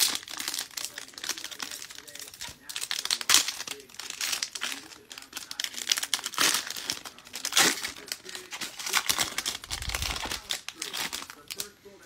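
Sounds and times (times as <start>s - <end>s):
foil wrapper crinkling: 0.0s - 11.8s.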